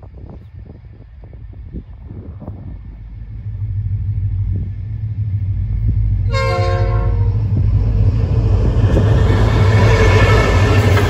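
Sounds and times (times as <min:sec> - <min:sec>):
locomotive rumble: 0:00.0 - 0:11.0
train horn blast: 0:06.2 - 0:07.6, 0:09.2 - 0:11.0.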